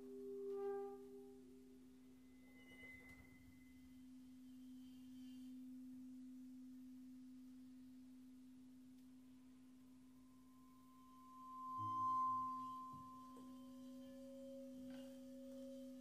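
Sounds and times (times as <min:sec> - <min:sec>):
bowed metal bowl ringing: 0:10.0 - 0:16.0.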